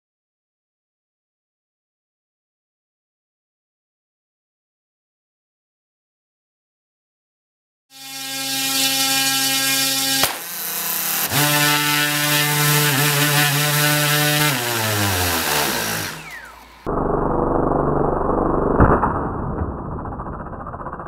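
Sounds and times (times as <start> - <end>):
sharp crack: 10.1 - 10.6
drone motors whining: 15.2 - 21.0.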